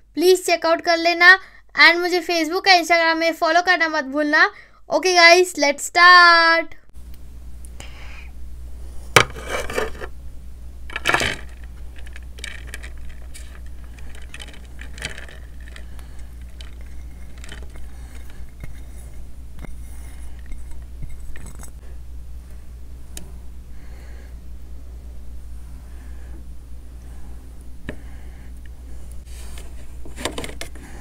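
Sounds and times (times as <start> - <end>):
plates clinking and scraping: 9.2 - 10.1.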